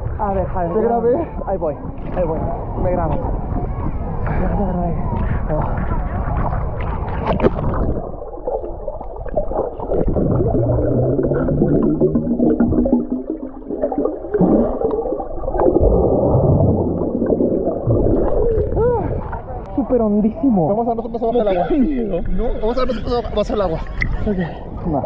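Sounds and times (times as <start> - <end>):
low hum: 0.0 - 19.8
underwater water movement: 0.0 - 19.8.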